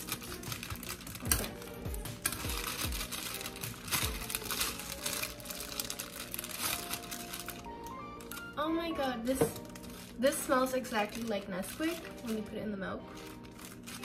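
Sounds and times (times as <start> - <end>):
plastic bag crinkling and tearing: 0.0 - 14.0
music with deep bass hits: 0.2 - 6.7.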